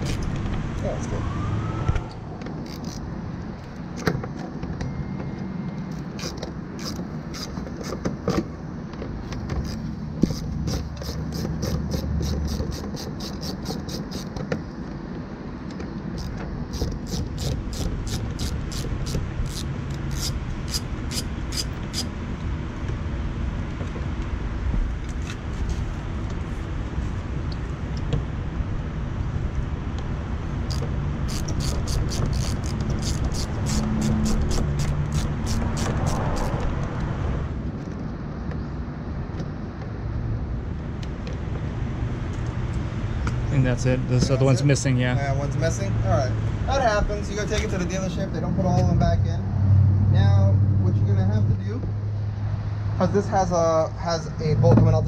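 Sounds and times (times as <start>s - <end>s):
hand ratchet clicking: 2.6s - 3.0s, 5.9s - 8.0s, 9.6s - 14.4s, 16.2s - 22.1s, 30.7s - 36.7s.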